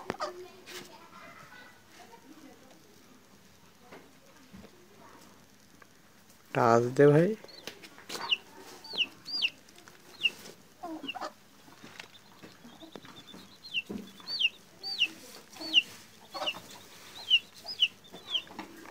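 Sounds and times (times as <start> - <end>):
chick peeping: 0.0 - 0.4, 7.0 - 18.9.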